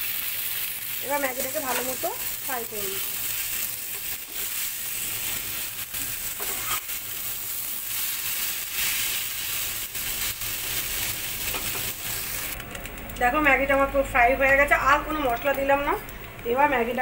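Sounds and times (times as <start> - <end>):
noodles sizzling in a frying pan: 0.0 - 12.6
spatula scraping a pan: 3.9 - 7.0.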